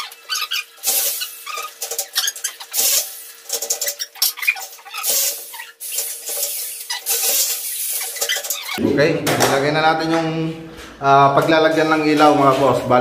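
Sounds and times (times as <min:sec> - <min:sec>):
metal rasping scrapes: 0:00.0 - 0:08.8.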